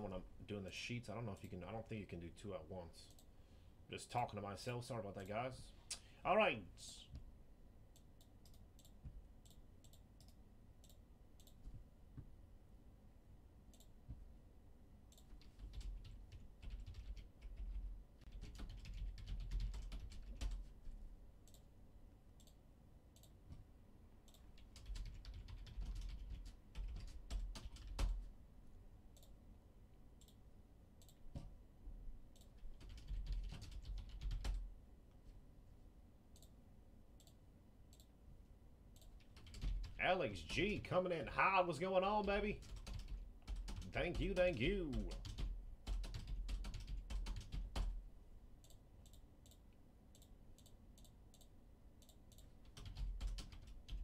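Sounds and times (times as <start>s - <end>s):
typing on a keyboard: 15.2s - 20.7s, 24.3s - 28.2s, 32.5s - 34.6s, 39.0s - 40.0s, 42.2s - 48.0s, 50.6s - 54.0s.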